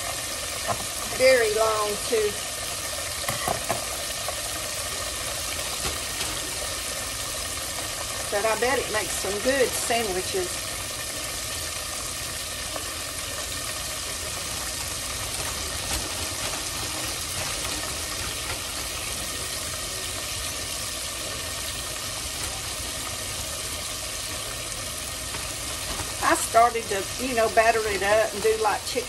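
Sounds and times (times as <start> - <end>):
meat sizzling in hot oil: 0.0 - 29.0
oil crackles: 0.0 - 29.0.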